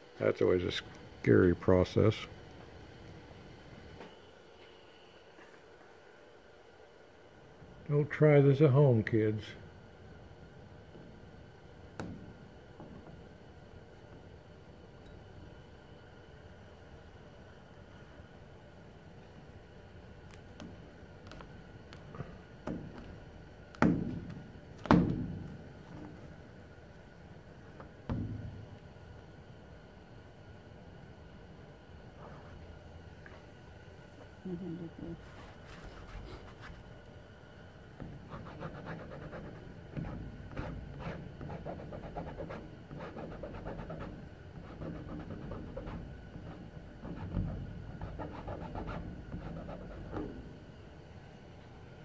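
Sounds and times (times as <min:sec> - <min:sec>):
squeegee rubbing over vinyl: 0:35.2 - 0:36.9, 0:38.0 - 0:50.4.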